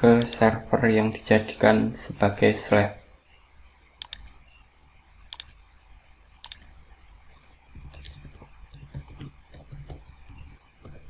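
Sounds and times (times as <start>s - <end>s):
computer mouse clicks: 4.0s - 4.5s, 5.3s - 5.7s, 6.4s - 6.8s, 7.4s - 11.0s
keyboard typing: 4.0s - 4.5s, 5.3s - 5.7s, 6.4s - 11.0s.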